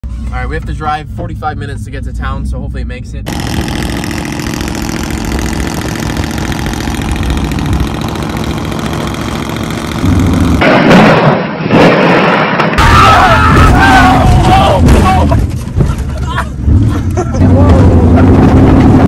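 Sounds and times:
truck engine running: 0:03.2 - 0:10.6
rough loud noise: 0:03.2 - 0:19.0.

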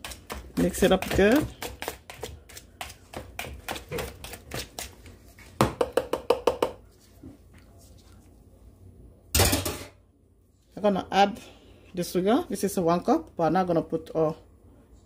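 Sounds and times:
utensil scraping ceramic bowl: 0:00.0 - 0:05.0.

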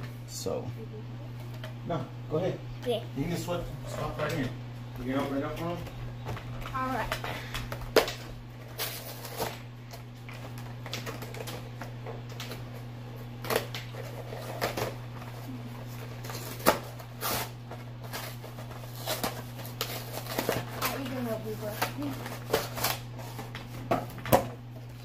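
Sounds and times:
steady low hum: 0:00.0 - 0:25.0
cardboard and packaging rustling: 0:03.9 - 0:25.0
packaging crinkles: 0:15.9 - 0:23.7.

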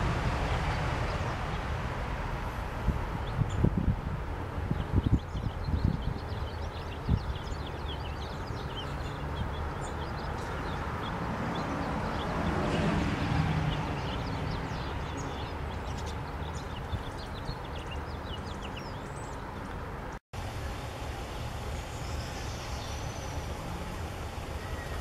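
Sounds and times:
finches chipping and twittering: 0:04.7 - 0:12.6, 0:13.7 - 0:19.9.

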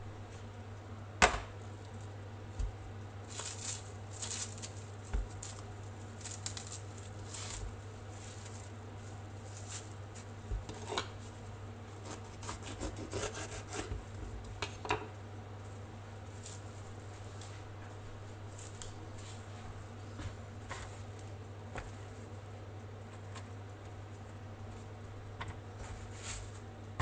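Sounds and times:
steady low hum: 0:00.0 - 0:27.0
plastic bag rustling: 0:01.6 - 0:12.2, 0:15.6 - 0:27.0
serrated knife sawing pepper: 0:12.0 - 0:13.9.

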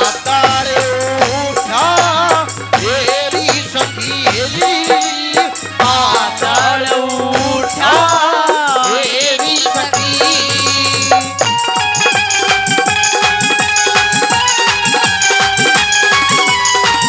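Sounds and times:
drums: 0:00.0 - 0:17.0
held chords: 0:00.0 - 0:17.0
rattling percussion: 0:00.0 - 0:17.0
sliding melodic line: 0:09.7 - 0:17.0.

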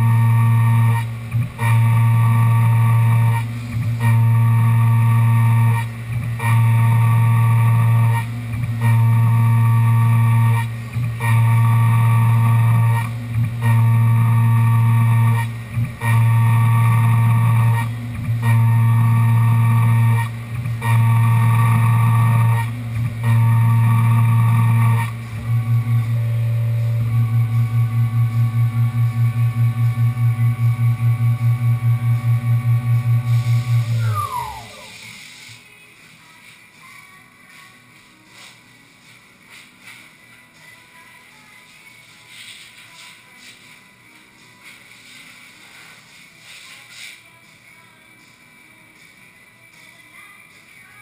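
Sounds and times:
milling machine hum: 0:00.0 - 0:35.6
machine whine: 0:00.0 - 0:35.8.

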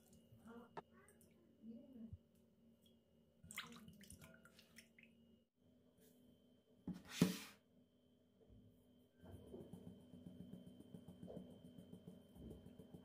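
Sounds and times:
liquid pouring or splashing: 0:03.4 - 0:05.1.

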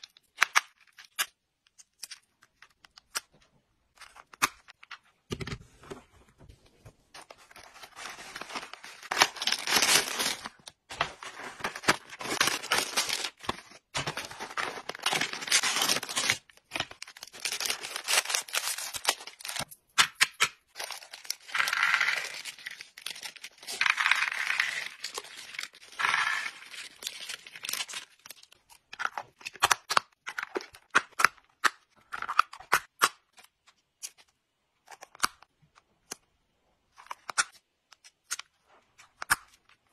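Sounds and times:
plastic bag crinkling: 0:11.3 - 0:19.7.

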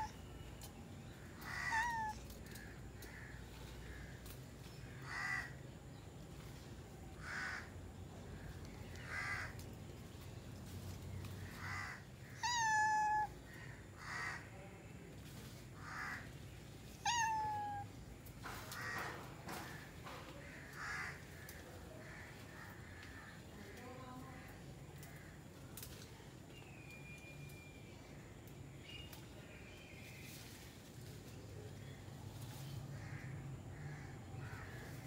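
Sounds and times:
cat meowing: 0:01.4 - 0:02.3, 0:11.6 - 0:13.4, 0:17.0 - 0:17.9
crow cawing: 0:01.4 - 0:04.3, 0:04.9 - 0:05.6, 0:07.2 - 0:07.7, 0:09.0 - 0:09.6, 0:11.4 - 0:14.5, 0:15.8 - 0:16.3, 0:18.7 - 0:23.8, 0:33.0 - 0:35.0.

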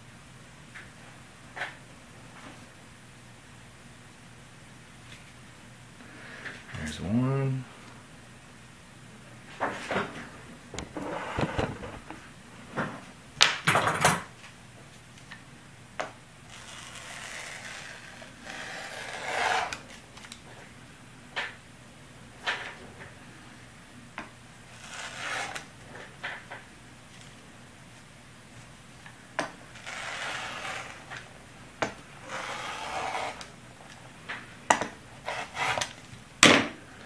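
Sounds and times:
rotary cutter scraping: 0:16.5 - 0:19.9, 0:24.7 - 0:25.6, 0:29.8 - 0:31.2, 0:32.2 - 0:33.5.

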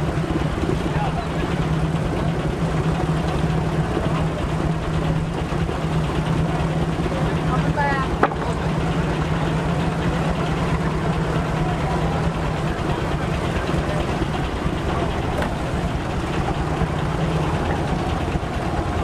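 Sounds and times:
steam engine running: 0:00.0 - 0:19.0
low hum: 0:08.0 - 0:19.0.

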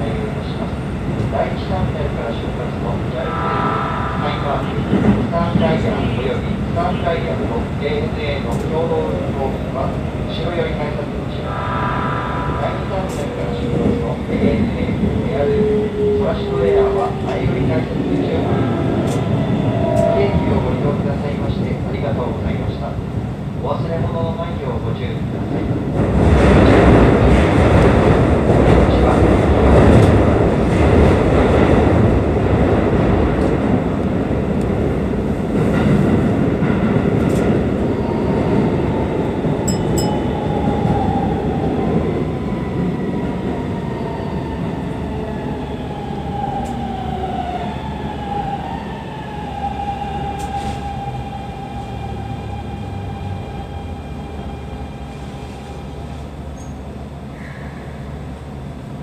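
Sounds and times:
train rumbling through tunnel: 0:00.0 - 0:59.0
train braking: 0:03.0 - 0:06.8, 0:11.3 - 0:21.0.

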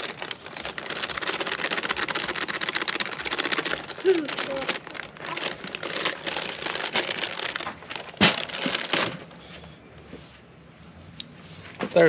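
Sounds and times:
dry mix pouring: 0:00.0 - 0:09.2
plastic bag crinkling: 0:00.0 - 0:09.4.

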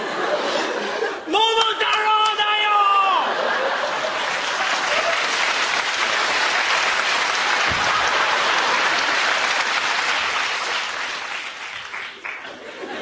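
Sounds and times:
audience applauding: 0:03.2 - 0:13.0.

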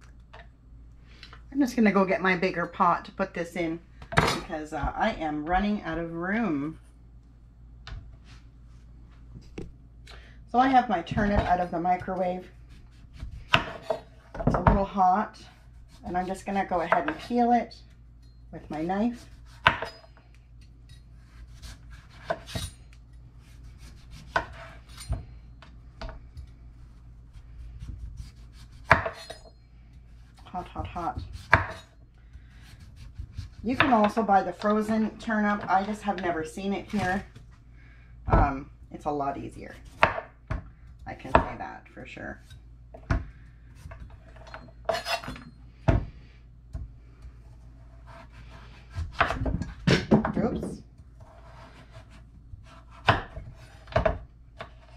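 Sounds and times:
faint knife scraping: 0:19.2 - 0:25.2, 0:43.8 - 0:45.6
knife blade scraping: 0:28.2 - 0:29.6, 0:44.2 - 0:45.5.

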